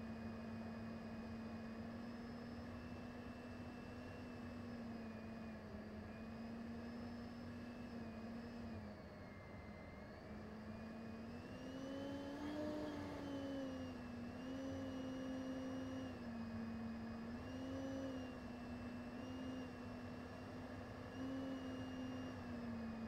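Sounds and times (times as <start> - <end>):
jet engine whine: 0.0 - 23.0.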